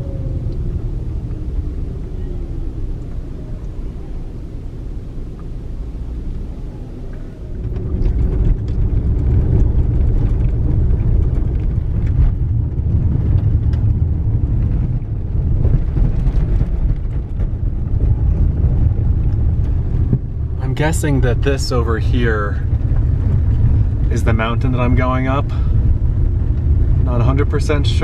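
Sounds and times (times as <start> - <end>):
car engine running softly: 0.0 - 28.0
tyres rumbling on gravel: 0.0 - 28.0.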